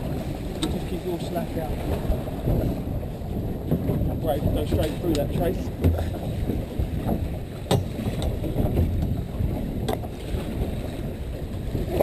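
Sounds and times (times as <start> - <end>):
boat low rumble: 0.0 - 12.0
wind on microphone: 0.0 - 12.0
sharp knocks: 7.7 - 9.0.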